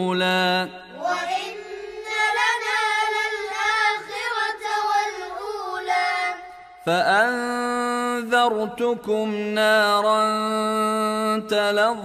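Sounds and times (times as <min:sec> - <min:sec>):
adult voice reciting: 0:00.0 - 0:01.0, 0:06.8 - 0:12.0
child chanting melodic recitation: 0:00.9 - 0:06.4.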